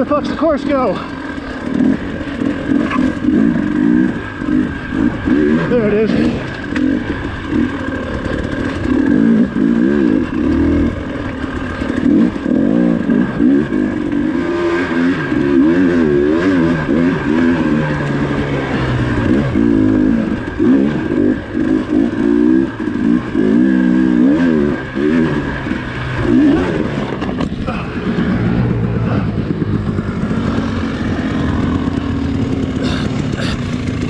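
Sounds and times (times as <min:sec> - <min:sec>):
dirt bike engine revving: 0:00.0 - 0:34.0.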